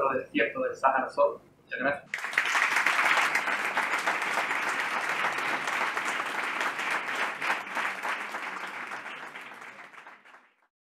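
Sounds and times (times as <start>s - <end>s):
audience applauding: 2.1s - 10.7s.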